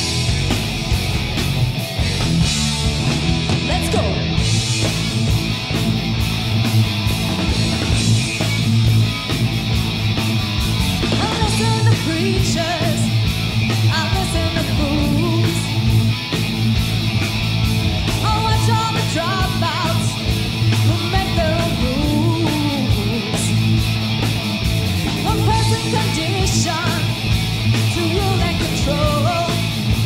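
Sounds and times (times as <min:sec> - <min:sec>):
bass guitar: 0:00.0 - 0:30.0
distorted electric guitars: 0:00.0 - 0:30.0
drums: 0:00.0 - 0:30.0
woman singing: 0:11.2 - 0:13.1, 0:13.9 - 0:15.7, 0:18.2 - 0:20.2, 0:20.8 - 0:23.5, 0:25.2 - 0:27.1, 0:27.9 - 0:29.7.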